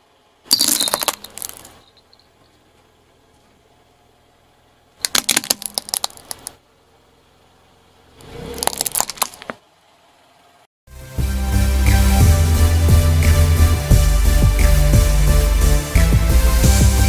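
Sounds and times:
low tyre rumble: 0.0s - 10.6s
plastic toy cracking: 0.5s - 1.8s, 5.0s - 6.6s, 8.6s - 9.6s.

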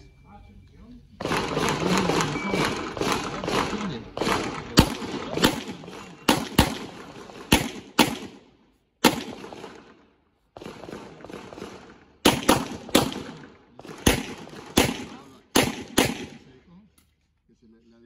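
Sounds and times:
handgun shots with echo: 1.2s - 8.4s, 9.0s - 9.8s, 10.6s - 16.5s.

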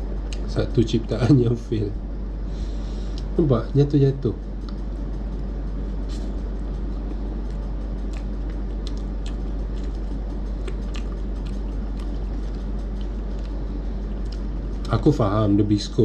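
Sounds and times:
steady low hum: 0.0s - 16.0s
person chewing: 7.0s - 14.9s
soft mouth clicks: 7.5s - 12.2s.

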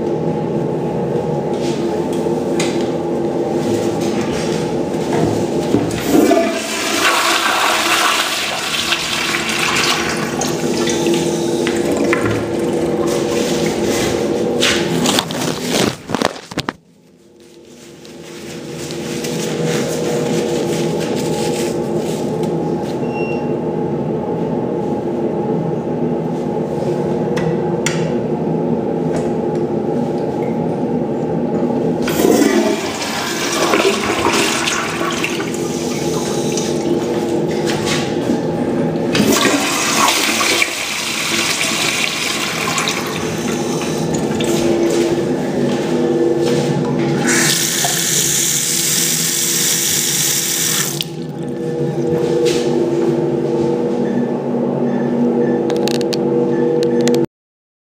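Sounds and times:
steady hum: 0.0s - 57.2s
toilet flushing: 5.4s - 15.9s, 32.0s - 53.0s.

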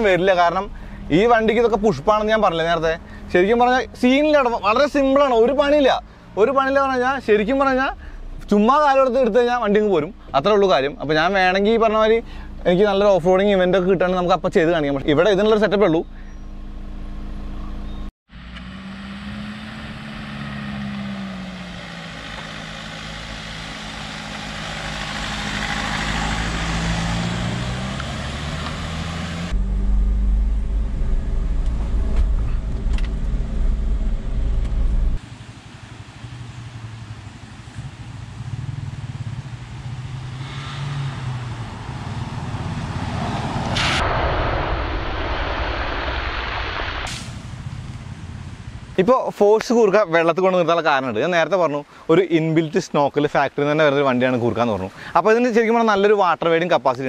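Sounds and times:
diesel engine driving: 0.0s - 50.2s.

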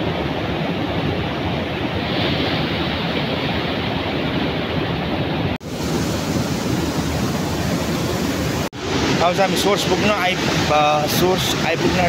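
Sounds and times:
stream rushing over boulders: 5.4s - 12.0s.

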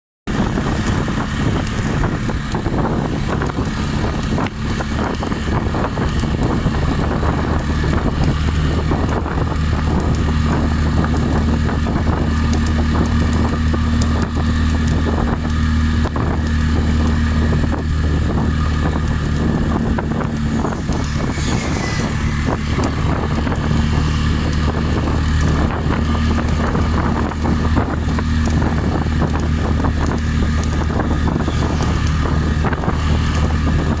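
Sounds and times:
road noise: 0.3s - 34.0s
vehicle engine drone: 0.3s - 34.0s
wind rushing over microphone: 0.3s - 34.0s.

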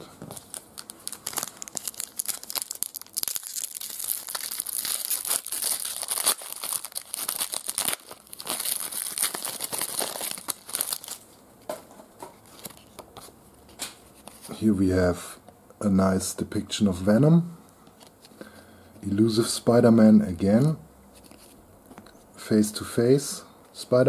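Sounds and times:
foil wrapper tearing and crinkling: 0.4s - 11.3s.

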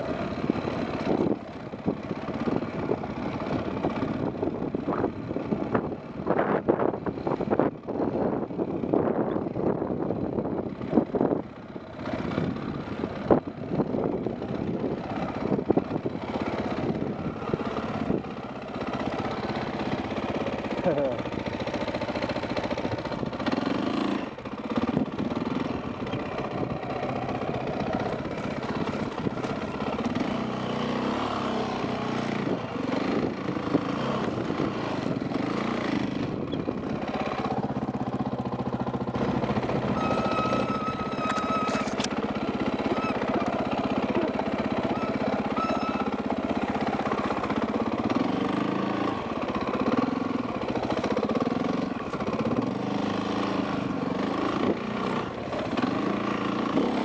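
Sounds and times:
dirt bike engine revving: 22.8s - 57.0s.

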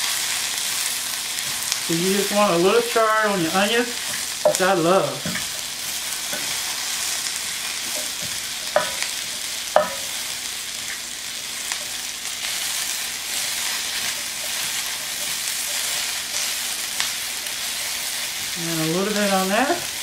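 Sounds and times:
vegetables sizzling in a pan: 0.0s - 20.0s.

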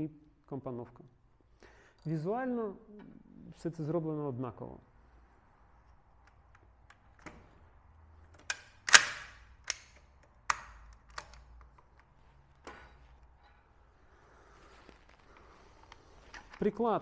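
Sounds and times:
gun parts clicking: 8.3s - 12.2s.

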